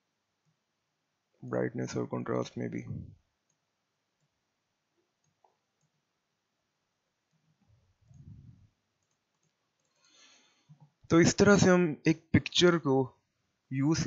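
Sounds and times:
computer mouse clicks: 0:05.2 - 0:06.0, 0:09.0 - 0:10.2
soft low sound: 0:07.9 - 0:08.8.

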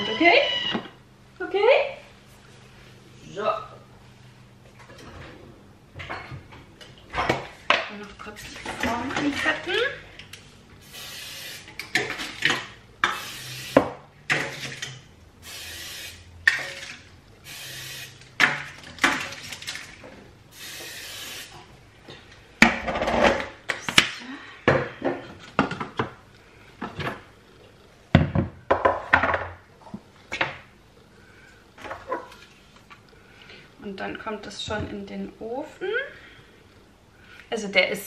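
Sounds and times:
cooking oil spray hissing: 0:10.8 - 0:11.7, 0:13.1 - 0:13.8, 0:15.4 - 0:16.2, 0:17.4 - 0:18.2, 0:20.5 - 0:21.6.

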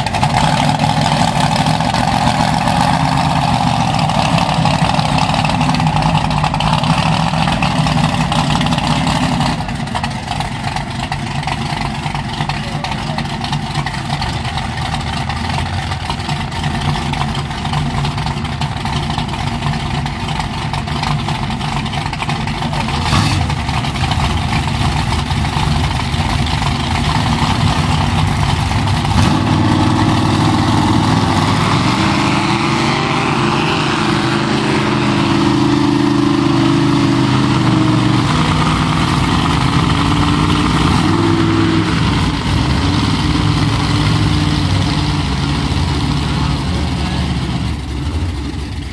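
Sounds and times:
truck engines revving under load: 0:00.0 - 0:48.9.

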